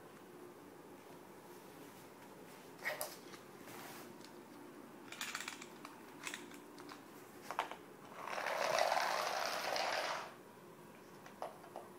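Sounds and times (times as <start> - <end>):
clockwork toy motor whirring: 8.1 - 10.3.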